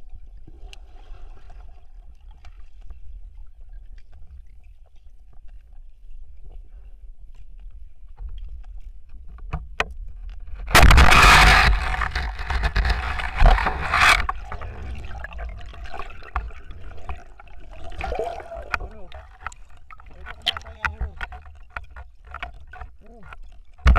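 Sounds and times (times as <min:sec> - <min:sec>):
faint underwater clicks: 0:00.5 - 0:23.9
loud underwater rushing: 0:10.8 - 0:21.4
underwater crackling: 0:10.8 - 0:23.9.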